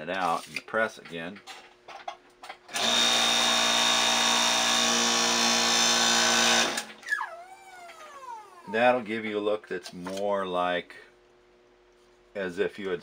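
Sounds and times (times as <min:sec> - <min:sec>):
hydraulic press pump running: 0:02.7 - 0:08.7.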